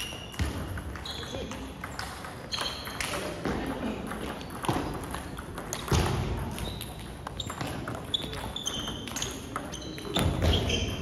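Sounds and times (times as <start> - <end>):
short high squeaks: 6.6 - 11.0.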